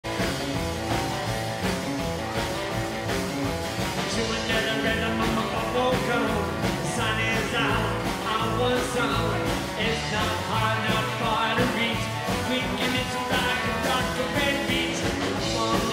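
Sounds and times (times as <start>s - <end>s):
rockabilly band playing live: 0.0s - 15.9s
male lead vocal: 4.0s - 15.9s.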